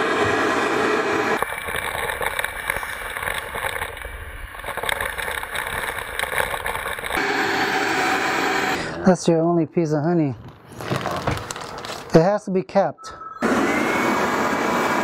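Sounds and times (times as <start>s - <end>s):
vacuum hose rushing air: 13.4s - 15.0s.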